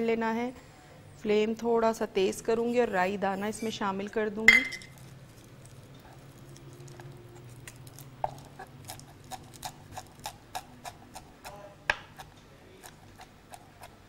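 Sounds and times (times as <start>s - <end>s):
knife chopping on wooden board: 8.2s - 14.0s.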